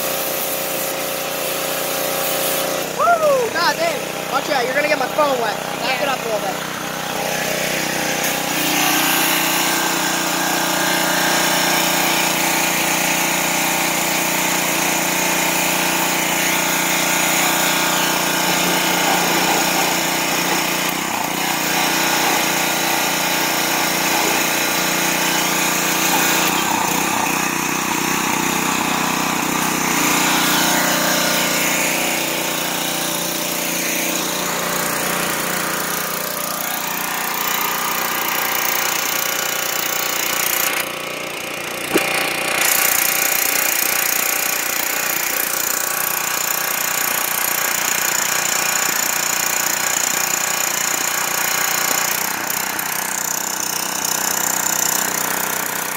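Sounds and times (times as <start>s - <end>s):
water jet hissing onto metal: 0.0s - 2.9s
pressure washer engine running: 0.0s - 55.9s.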